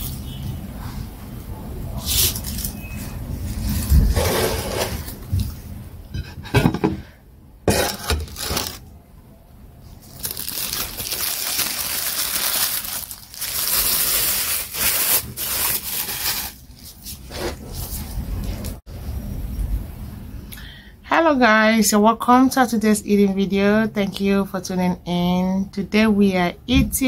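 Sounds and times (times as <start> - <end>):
plastic bag rustling: 7.7 - 8.9, 9.9 - 18.5.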